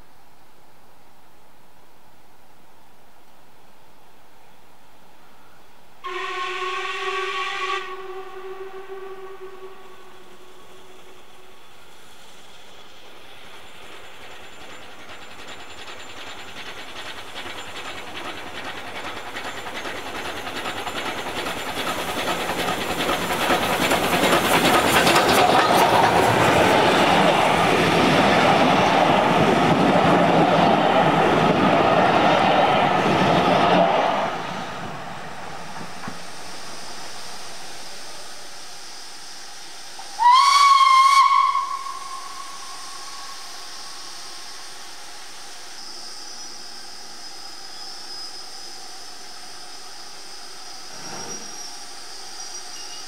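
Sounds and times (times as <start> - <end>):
steam train running past: 5.3 - 53.0
steam locomotive whistle: 6.0 - 11.6, 40.0 - 45.0.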